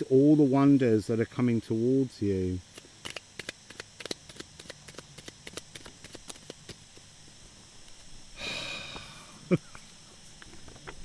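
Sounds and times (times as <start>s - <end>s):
shuffling deck of cards: 3.0s - 6.8s
breathy sigh: 8.4s - 9.4s.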